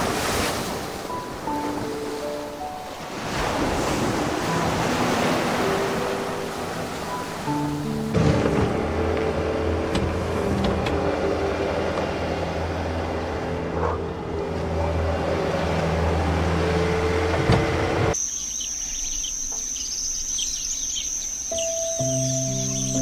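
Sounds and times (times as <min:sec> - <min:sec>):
soft sustained music: 0:00.0 - 0:18.2, 0:21.4 - 0:23.0
held piano notes: 0:01.0 - 0:18.2, 0:21.5 - 0:23.0
birds chirping: 0:18.0 - 0:23.0
high insect drone: 0:18.2 - 0:23.0.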